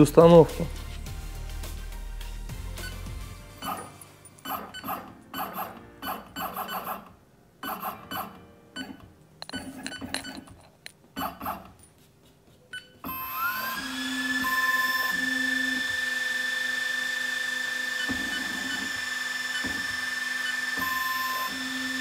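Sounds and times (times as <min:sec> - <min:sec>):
laser engraver motor whine: 0:13.0 - 0:22.0.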